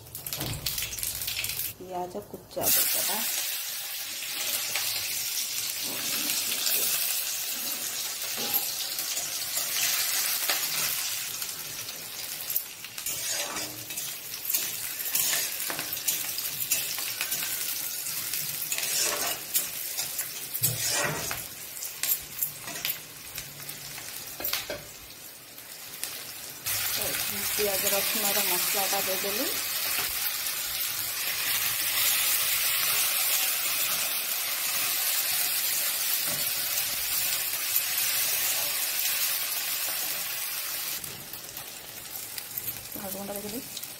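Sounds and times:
onion sizzling in oil: 0.0s - 43.9s
spatula scraping pan: 13.0s - 21.5s.

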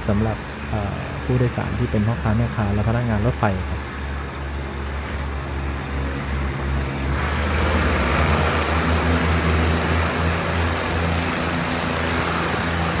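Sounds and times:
railcar engine hum: 0.0s - 13.0s
wheel and rail rushing: 3.8s - 13.0s.

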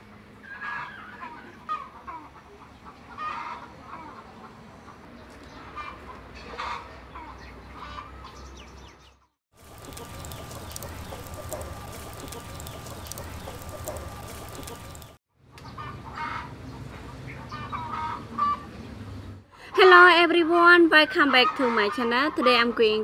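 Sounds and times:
wood fire crackling: 9.5s - 15.2s
hens clucking: 9.7s - 15.1s.

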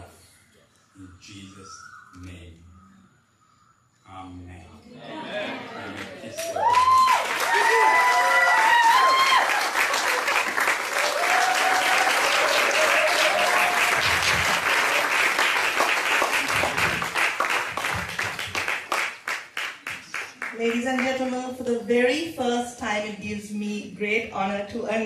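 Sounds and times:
crowd clapping and cheering: 5.8s - 21.3s
whoops: 6.4s - 10.2s, 11.0s - 15.0s.

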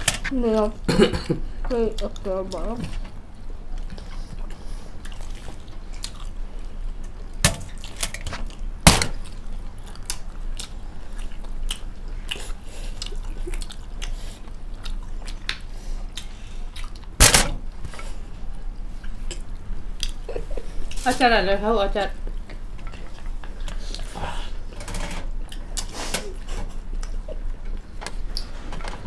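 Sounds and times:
people chewing with wet mouth clicks: 1.7s - 2.8s, 3.7s - 17.2s, 18.5s - 21.0s, 22.2s - 24.5s, 25.4s - 28.5s.

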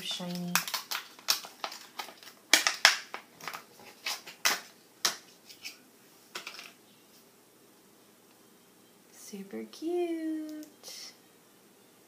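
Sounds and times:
plastic wrapping crinkling: 0.0s - 5.8s.

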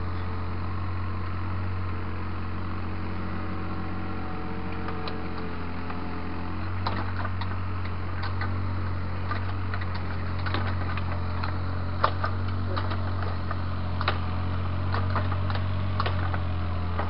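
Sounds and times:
excavator diesel engine humming: 0.0s - 17.0s
bucket clicking and knocking on stones: 9.3s - 14.3s, 14.9s - 17.0s.

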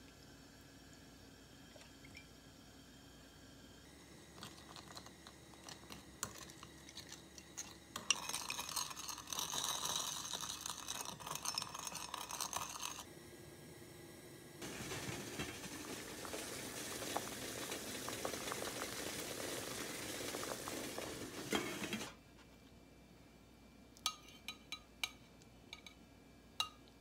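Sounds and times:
water boiling: 0.0s - 13.1s, 14.6s - 22.2s.

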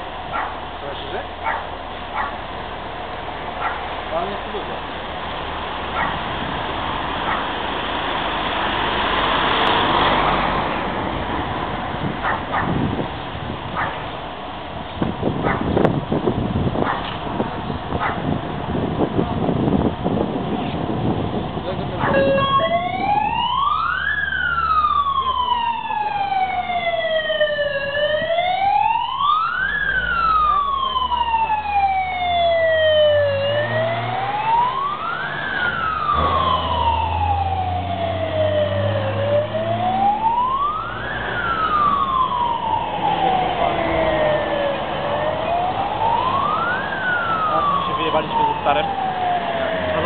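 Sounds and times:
truck engine rumble: 0.0s - 50.0s
fire truck siren wailing: 15.1s - 50.0s.

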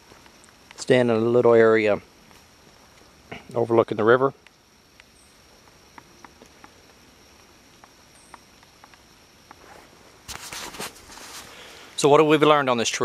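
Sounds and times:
raindrops ticking on leaves: 0.0s - 9.6s
rustling: 5.6s - 12.1s.

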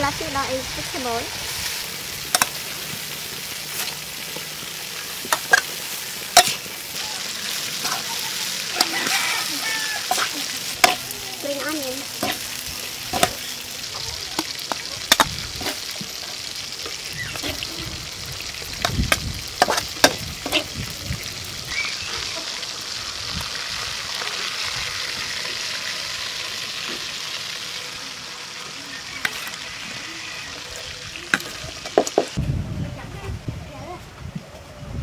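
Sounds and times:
vegetables sizzling in a wok: 0.0s - 32.4s
utensil scraping a wok: 0.5s - 20.8s.

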